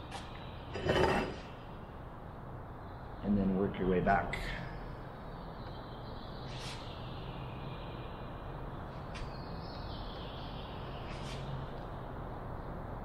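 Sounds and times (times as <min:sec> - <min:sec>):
workshop hum: 0:00.0 - 0:02.2.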